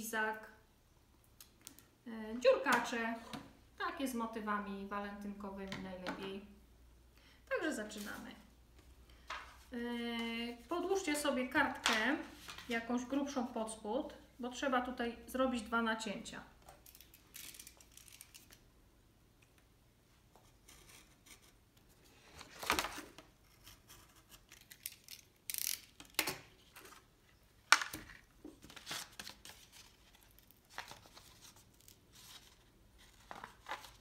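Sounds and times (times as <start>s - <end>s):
paper rustling: 28.1s - 34.0s.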